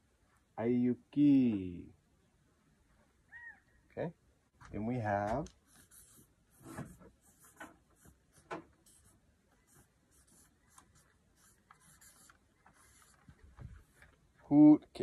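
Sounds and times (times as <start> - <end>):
marker scratching on paper: 5.7 - 13.3.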